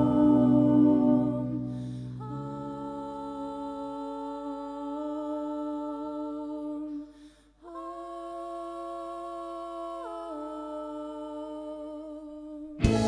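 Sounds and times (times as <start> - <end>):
live rock song held notes: 12.8 - 13.0.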